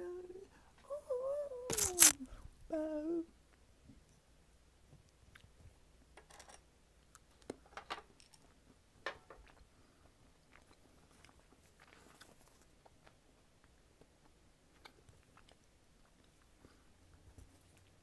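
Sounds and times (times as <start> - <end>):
earbuds handling rustle: 1.7 - 2.2.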